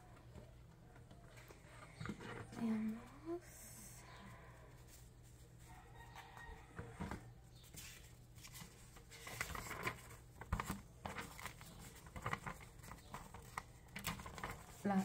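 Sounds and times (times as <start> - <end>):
paper rustling: 7.6 - 15.0.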